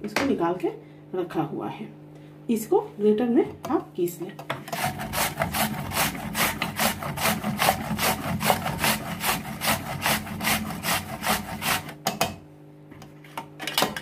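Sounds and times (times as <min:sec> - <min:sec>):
root grated on metal grater: 0:04.7 - 0:12.0.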